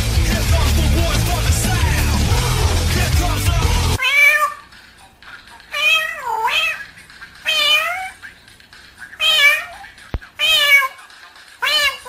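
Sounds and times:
parrot imitating cat meows: 4.0 - 4.7, 5.7 - 8.2, 9.2 - 9.8, 10.4 - 11.0, 11.6 - 12.0.

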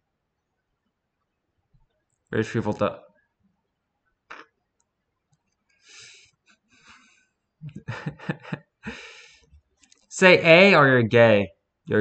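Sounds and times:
person speaking: 2.4 - 3.0, 10.1 - 12.0
soft breathy exhales: 5.8 - 7.1.

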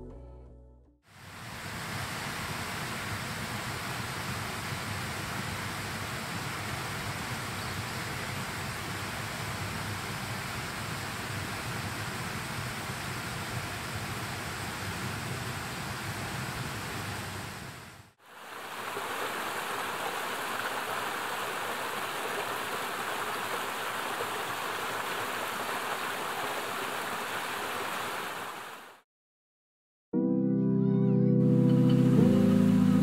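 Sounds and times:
rushing water: 1.1 - 29.0.

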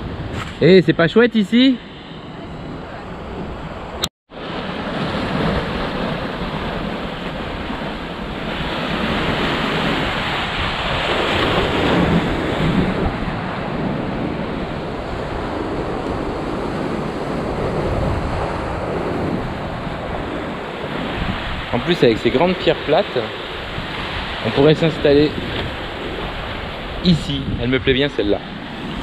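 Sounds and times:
wind buffeting microphone: 0.0 - 29.0
waves washing against rocks: 4.4 - 27.4.

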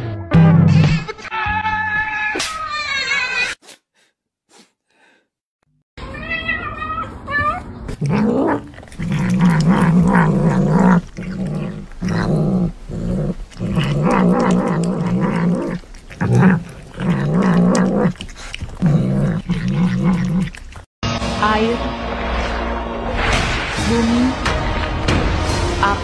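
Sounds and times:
cat growling while eating: 7.9 - 20.9.

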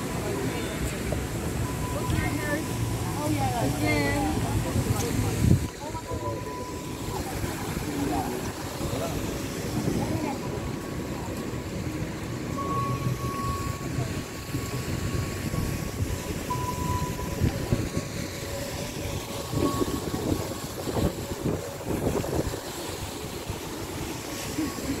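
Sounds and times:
wind buffeting microphone: 13.9 - 25.0.

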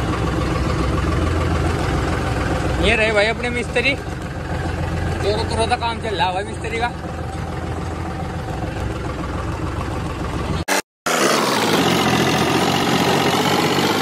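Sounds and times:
tractor diesel engine running: 0.0 - 14.0.

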